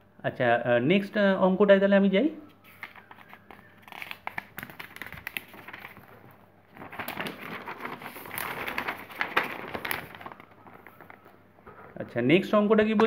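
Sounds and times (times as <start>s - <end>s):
paper sheets rustling: 2.6s - 11.4s.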